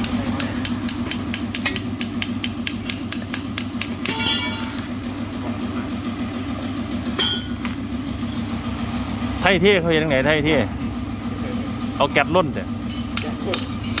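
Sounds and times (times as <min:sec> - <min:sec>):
machine hum: 0:03.8 - 0:13.1
metallic clink: 0:04.0 - 0:04.9.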